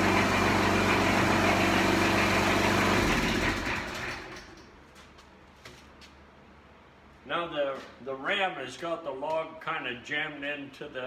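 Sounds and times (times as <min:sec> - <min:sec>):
engine running and winding down: 0:00.0 - 0:04.5.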